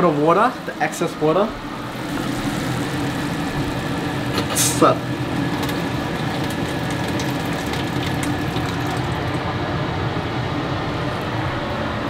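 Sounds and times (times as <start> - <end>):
steady low hum: 0.0 - 12.0
liquid pouring into a steel sink: 1.9 - 9.4.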